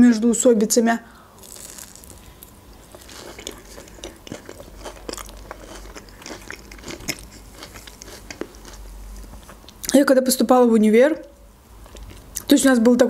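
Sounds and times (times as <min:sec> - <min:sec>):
person chewing peach: 0:01.4 - 0:10.0, 0:11.8 - 0:12.5.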